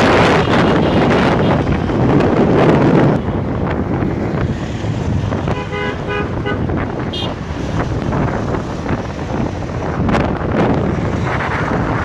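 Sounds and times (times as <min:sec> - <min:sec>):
road and traffic rumble: 0:00.0 - 0:12.0
wind rushing over microphone: 0:00.0 - 0:12.0
vehicle horn toots: 0:05.5 - 0:07.4.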